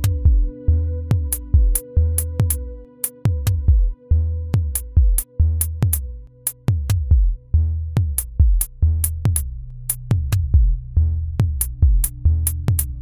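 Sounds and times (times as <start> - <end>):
kick drum thumps: 0.0 - 2.6, 3.3 - 4.0, 4.6 - 6.1, 6.7 - 7.4, 8.0 - 9.5, 10.1 - 10.8, 11.4 - 13.0
low synth tones: 0.0 - 13.0
hi-hat clicks: 1.1 - 3.7, 4.6 - 7.4, 8.0 - 10.8, 11.4 - 13.0.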